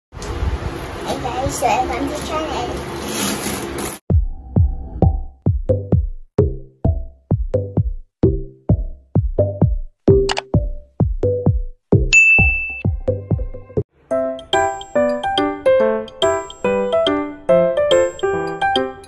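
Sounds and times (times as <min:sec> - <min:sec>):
drum machine beat: 0:04.1 - 0:13.8
high ding: 0:12.1 - 0:12.9.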